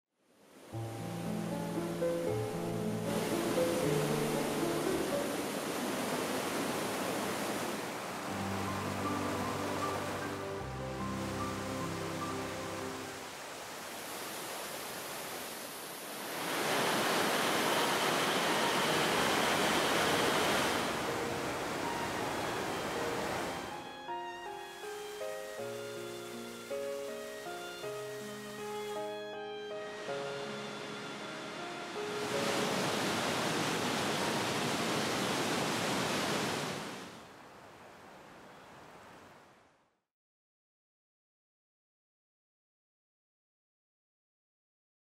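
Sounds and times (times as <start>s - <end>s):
stream rushing over rocks: 3.0s - 23.7s, 31.4s - 39.3s.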